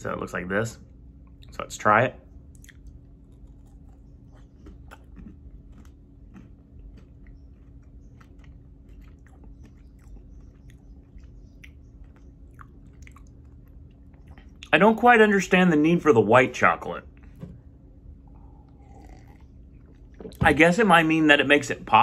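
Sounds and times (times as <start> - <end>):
person chewing crunchy candy bar: 2.4 - 14.8, 18.2 - 20.4.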